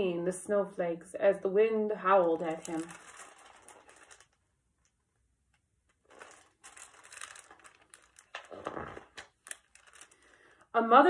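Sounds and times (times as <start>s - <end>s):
book pages rustling: 2.2s - 5.0s, 5.9s - 10.6s.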